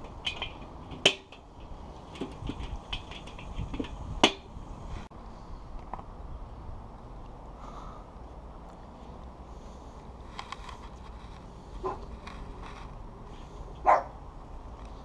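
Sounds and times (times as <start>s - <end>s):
metal lid clanking: 0.0s - 4.5s.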